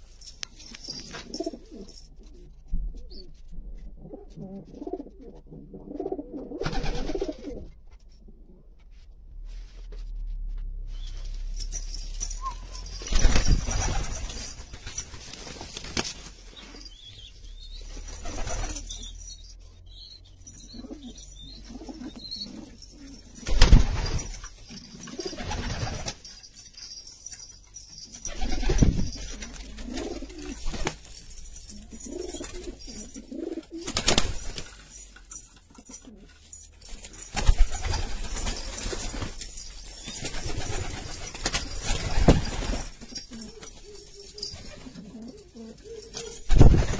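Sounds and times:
pigeons cooing: 20.5 - 23.5, 28.3 - 30.7, 31.7 - 34.0, 40.0 - 46.8.

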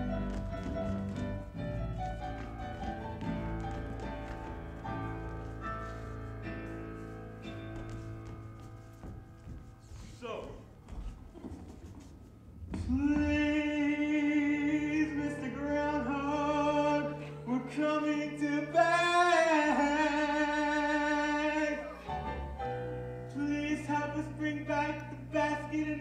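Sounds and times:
stage musical backing music: 0.0 - 26.0.

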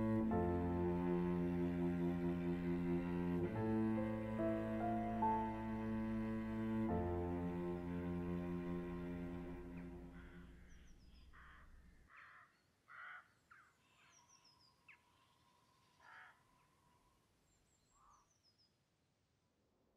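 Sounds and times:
cello music: 0.0 - 10.8
faint crows cawing: 10.0 - 14.3, 15.9 - 17.1, 17.9 - 18.4.

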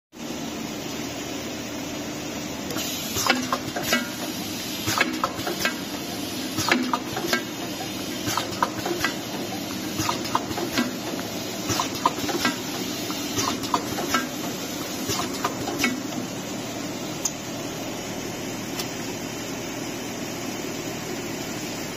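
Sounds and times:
machine motor hum: 1.5 - 21.9
machine clicks and clacks: 2.7 - 16.3.

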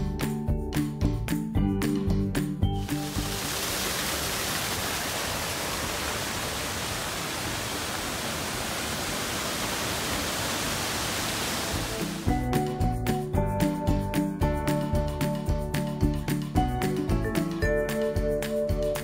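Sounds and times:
background music: 0.0 - 3.6, 11.6 - 19.0
steady rushing hiss: 2.8 - 12.4.

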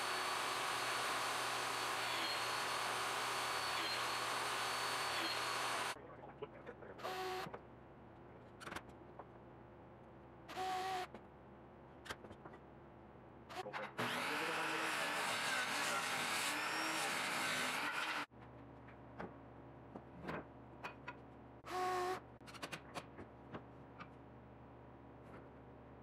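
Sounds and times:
radial arm saw running: 0.0 - 6.0, 14.0 - 18.3.

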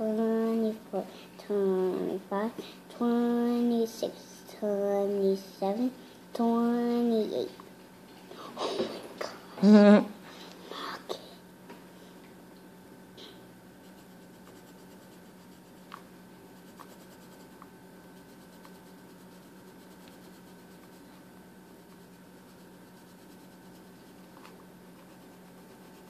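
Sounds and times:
low steady hum: 0.0 - 26.0
pencil scratching on paper: 13.8 - 15.9, 16.6 - 21.1, 21.7 - 24.2, 25.0 - 26.0.

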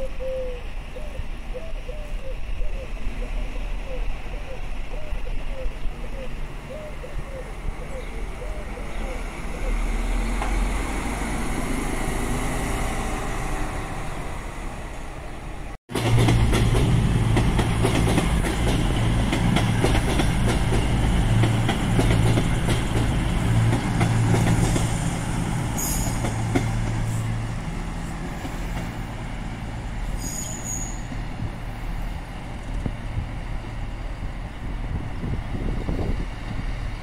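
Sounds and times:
diesel train engine drone: 0.0 - 37.0
high-pitched train squeals: 25.7 - 26.3, 30.0 - 31.2.

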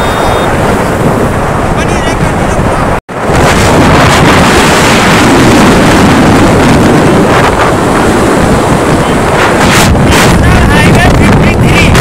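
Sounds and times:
motorcycle engine: 0.0 - 1.5
road noise: 0.0 - 12.0
wind rushing over microphone: 0.0 - 12.0.

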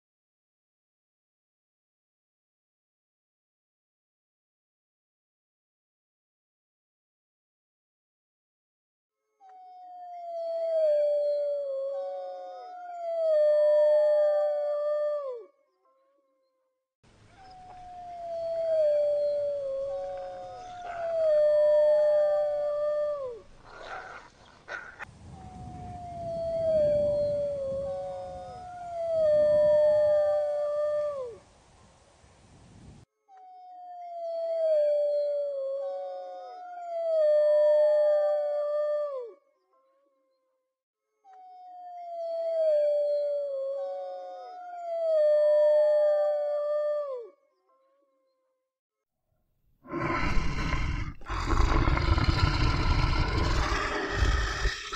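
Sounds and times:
wolves howling: 10.0 - 15.5, 17.3 - 25.1, 25.9 - 31.4, 49.9 - 54.9.

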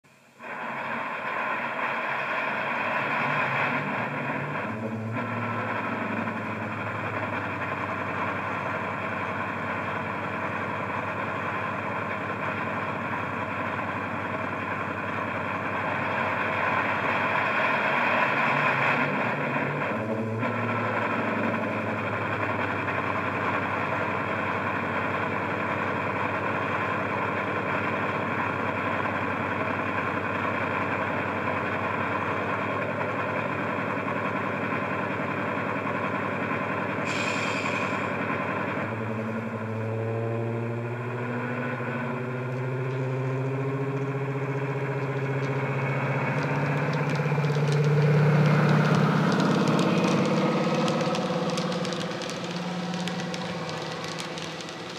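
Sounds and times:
model train engine idling: 0.1 - 54.9
short hiss: 37.0 - 38.2.

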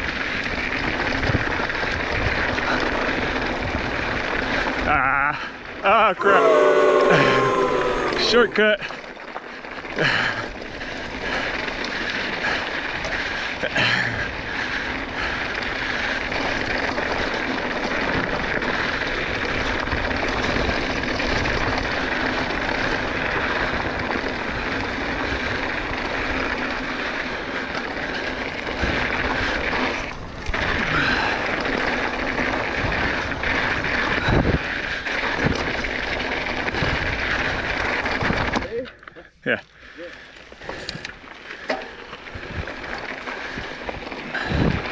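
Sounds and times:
wind noise on microphone: 0.0 - 5.3, 28.1 - 38.6, 42.3 - 44.9
bike rolling over dirt trail: 0.0 - 5.9, 8.6 - 39.0, 40.2 - 44.9.

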